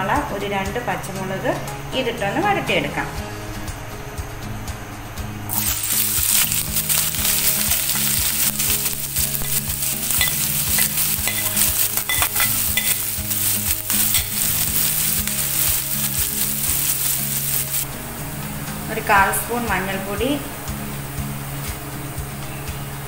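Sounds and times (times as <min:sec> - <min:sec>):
onion sizzling in hot oil: 0:05.5 - 0:18.0.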